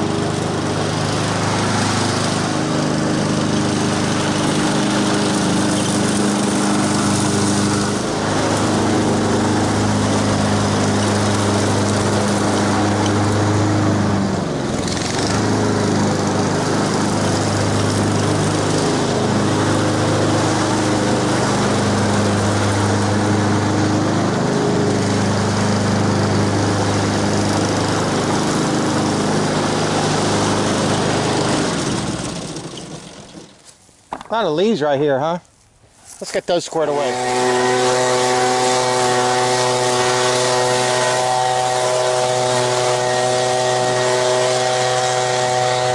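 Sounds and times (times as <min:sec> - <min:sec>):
lawn mower engine cutting grass: 0:00.0 - 0:45.9.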